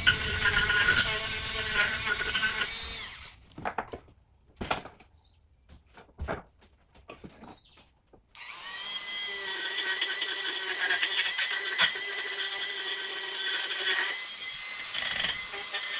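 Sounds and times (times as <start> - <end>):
rotary tool wire brush whine: 0.0 - 3.4, 8.4 - 15.9
scrapes and knocks: 3.5 - 8.3.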